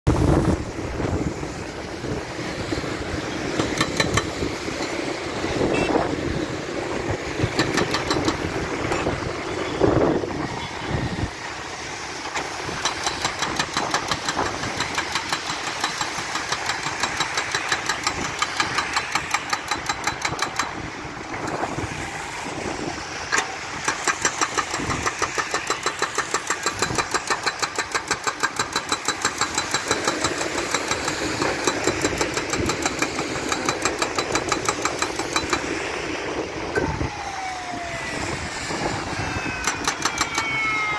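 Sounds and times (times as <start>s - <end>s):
hydraulic breaker hammer pounding: 3.4s - 5.0s, 7.2s - 9.2s, 12.4s - 20.8s, 23.4s - 35.8s.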